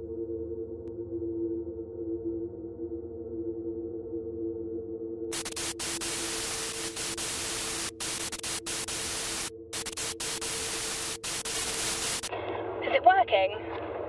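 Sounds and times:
low hum: 0:00.0 - 0:12.8
static hiss: 0:05.3 - 0:12.3.

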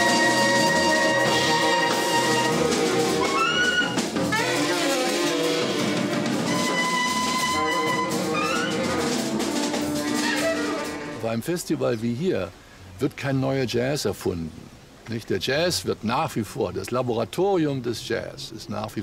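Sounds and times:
drum kit and cymbals: 0:00.0 - 0:11.2
horns playing jazz: 0:00.0 - 0:11.3.

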